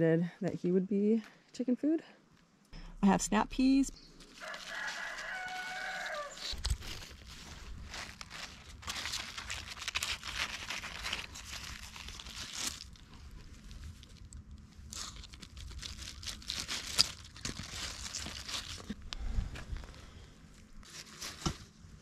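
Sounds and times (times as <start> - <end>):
leaves rustling: 4.1 - 20.2, 20.8 - 21.8.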